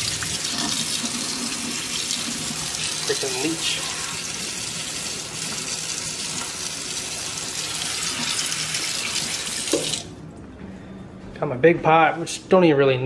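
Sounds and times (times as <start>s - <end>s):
faucet water splashing in sink: 0.0s - 10.1s.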